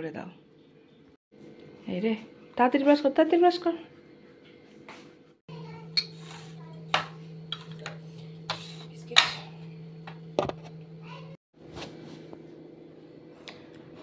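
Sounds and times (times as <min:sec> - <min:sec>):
steady low hum: 0:05.5 - 0:14.0.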